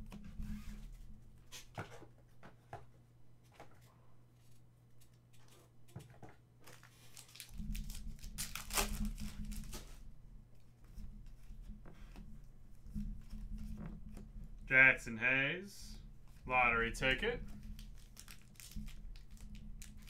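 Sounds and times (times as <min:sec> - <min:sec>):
wrapper and cards rustling: 0:03.5 - 0:10.1, 0:16.2 - 0:20.0
foil pack tearing and crinkling: 0:06.7 - 0:09.9, 0:17.7 - 0:20.0.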